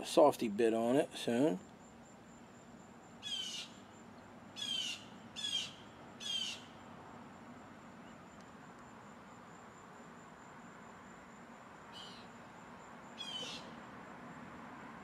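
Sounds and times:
bird calling: 3.2 - 3.8, 4.6 - 6.7, 11.9 - 12.3, 13.2 - 13.8.

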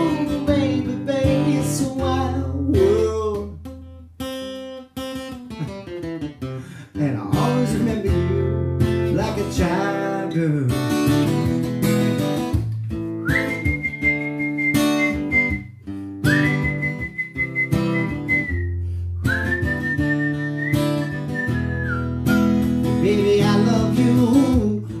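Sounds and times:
man singing: 0.0 - 3.7, 6.7 - 10.9, 22.9 - 25.0
acoustic guitar strumming: 0.0 - 25.0.

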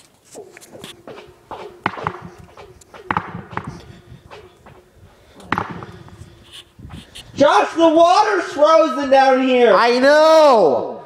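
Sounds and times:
footsteps echoing in a pipe: 0.0 - 7.3.

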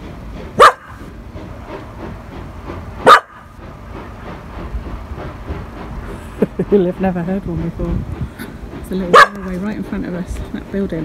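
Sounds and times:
steam train running: 0.0 - 11.0
dog barking: 0.6 - 0.9, 3.0 - 3.4, 9.1 - 9.5.

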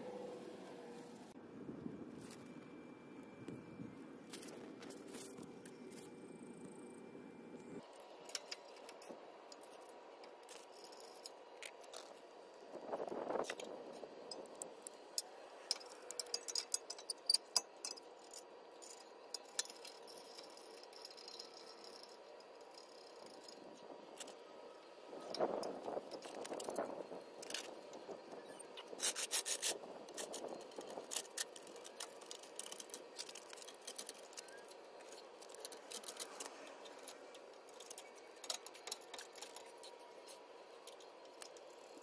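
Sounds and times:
light metallic clinks and rattles: 13.5 - 24.4.

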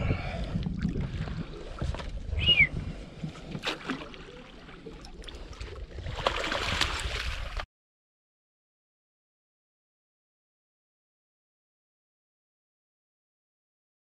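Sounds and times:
wind rumbling on microphone: 0.0 - 3.7, 5.2 - 7.6
water splashing: 3.1 - 7.6.

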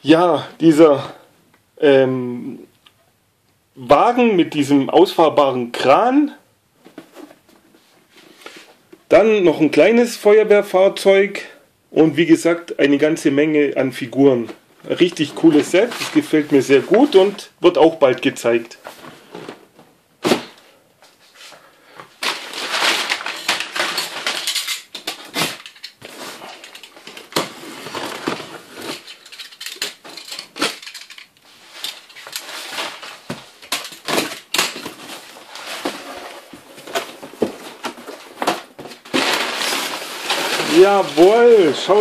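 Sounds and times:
packing paper rustling: 15.0 - 17.4, 22.2 - 42.0.

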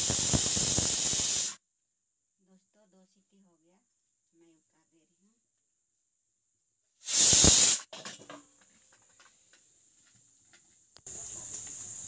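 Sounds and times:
pressure cooker steam hiss: 0.0 - 1.6, 7.0 - 8.3, 9.0 - 12.0.

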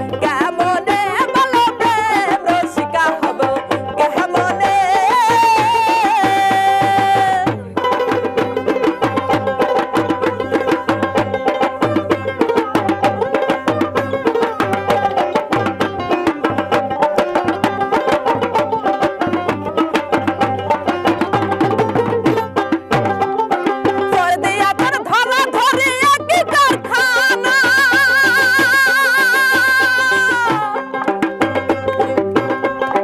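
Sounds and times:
dhol drum strokes: 0.0 - 33.0
plucked string melody: 0.0 - 33.0.

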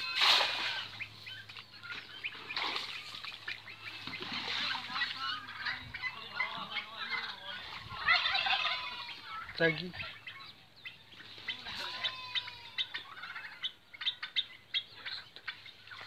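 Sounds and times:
net splashing into water: 0.0 - 1.0, 2.4 - 3.4
birds calling: 0.0 - 16.0.

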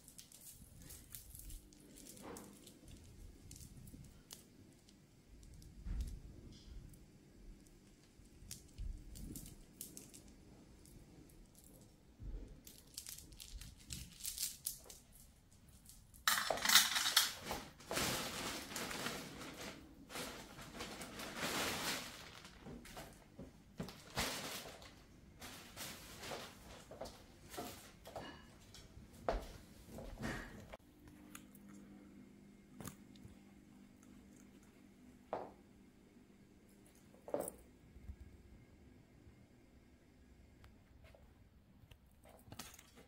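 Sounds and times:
items clicking and clinking: 0.0 - 6.1, 12.6 - 28.9
packaging crinkling and crackling: 0.0 - 6.2, 7.6 - 11.9, 12.5 - 27.9.

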